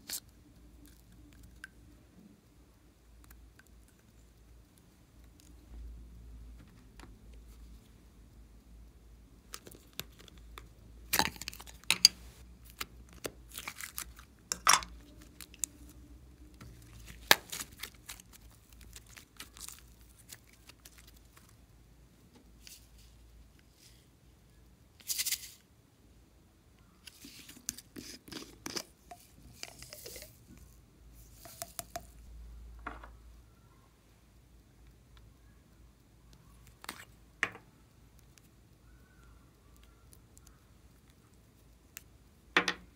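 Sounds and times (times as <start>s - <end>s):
hands handling slime and plastic: 9.4s - 21.7s, 25.0s - 25.6s, 26.8s - 33.2s, 36.3s - 42.9s.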